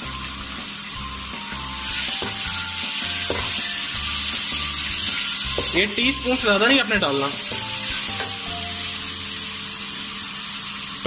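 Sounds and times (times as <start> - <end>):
onion sizzling in hot oil: 0.0 - 11.0
spatula stirring in metal pan: 1.8 - 5.9.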